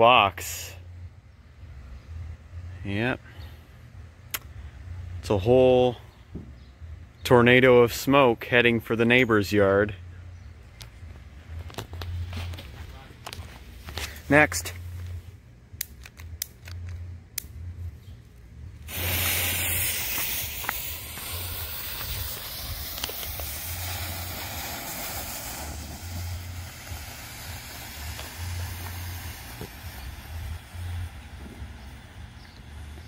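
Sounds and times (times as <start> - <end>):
smoke bomb hissing: 18.8 - 33.0.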